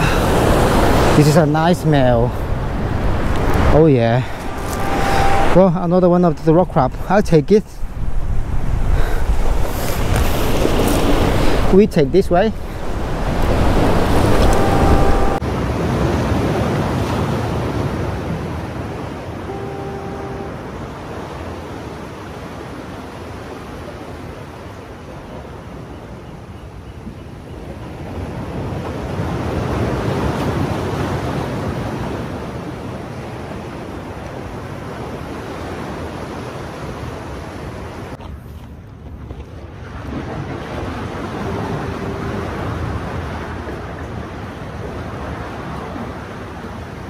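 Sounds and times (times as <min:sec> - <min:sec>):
wind on microphone: 0:00.0 - 0:07.1, 0:07.7 - 0:15.4
surf washing against rocks: 0:00.0 - 0:07.5, 0:08.2 - 0:19.3, 0:39.8 - 0:47.0.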